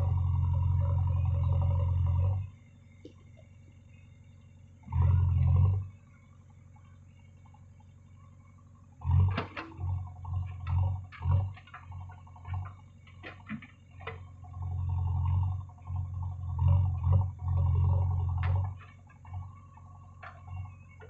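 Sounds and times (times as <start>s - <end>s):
diesel engine working in pulses: 0.0s - 21.0s
digging arm and bucket clanking: 9.1s - 21.0s.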